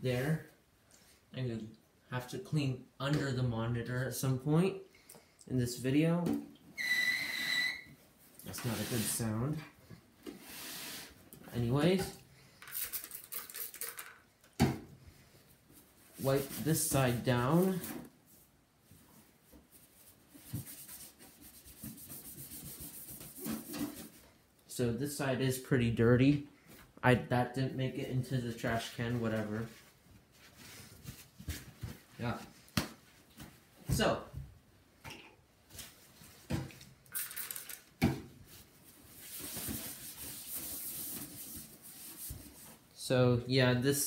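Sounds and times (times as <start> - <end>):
paper towel rubbing plastic: 19.8 - 24.2, 39.1 - 42.8.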